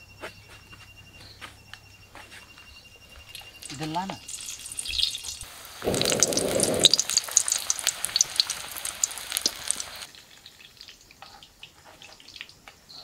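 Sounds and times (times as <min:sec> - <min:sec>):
battered chillies deep-frying in oil: 0:03.4 - 0:13.0.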